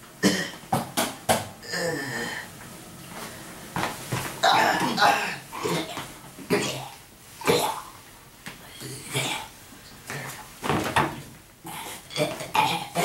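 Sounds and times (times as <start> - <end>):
person making cough-like sounds: 4.4 - 7.9.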